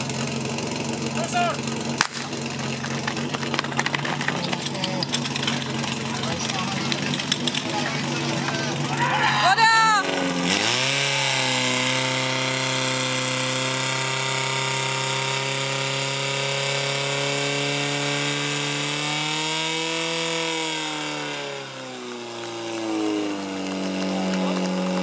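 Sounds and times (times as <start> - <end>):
fire pump engine running: 0.0 - 25.0.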